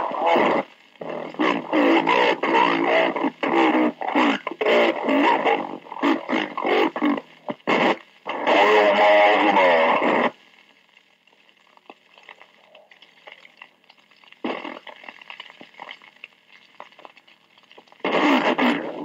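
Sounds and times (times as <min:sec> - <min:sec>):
garbled low-pitched radio voice: 0:00.0 - 0:10.4, 0:14.4 - 0:15.0, 0:18.0 - 0:19.0
radio channel crackle and clicks: 0:00.0 - 0:19.0.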